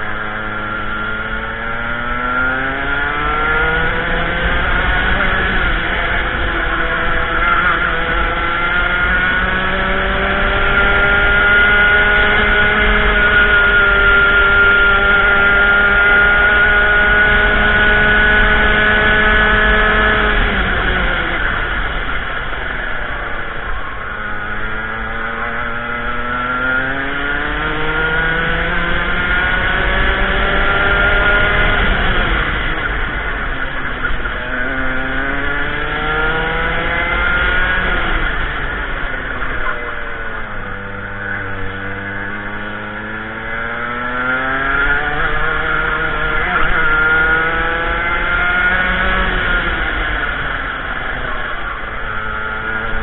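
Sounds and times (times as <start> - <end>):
racing kart engine: 0.0 - 53.0.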